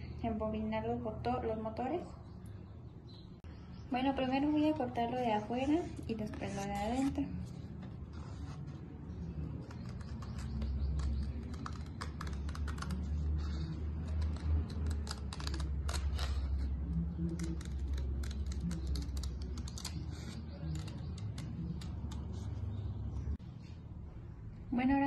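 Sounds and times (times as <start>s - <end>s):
scissors snipping cardstock: 9.5s - 22.6s.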